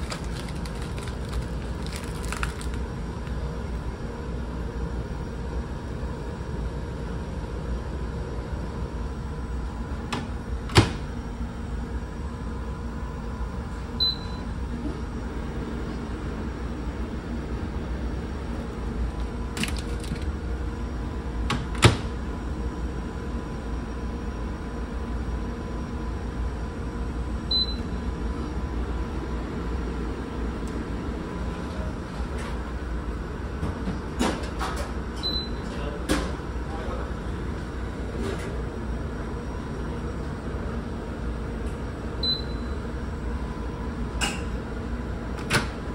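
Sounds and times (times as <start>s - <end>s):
microwave door clunks: 10.1s - 11.0s, 21.5s - 22.1s
microwave keypad beeps: 14.0s - 14.5s, 27.5s - 27.9s, 35.2s - 35.6s, 42.2s - 42.8s.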